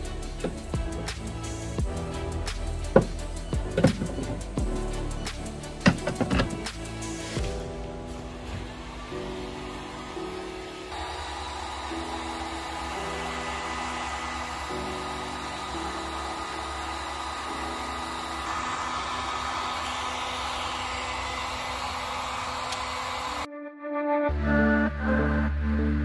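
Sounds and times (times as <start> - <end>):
heat gun blowing air: 8.4 - 23.5.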